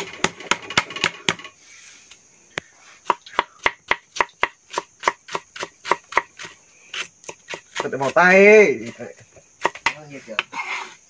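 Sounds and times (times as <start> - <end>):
knife chopping on wooden block: 3.0 - 9.0, 9.6 - 10.6.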